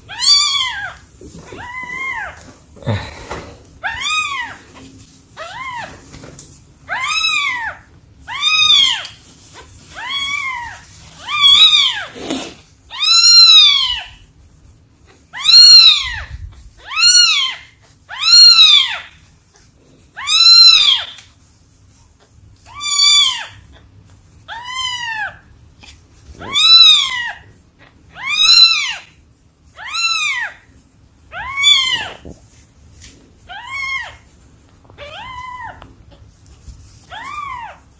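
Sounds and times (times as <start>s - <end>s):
kitten yelling: 15.4s - 19.0s, 20.2s - 21.1s, 26.4s - 27.4s, 28.2s - 29.0s, 31.3s - 32.4s.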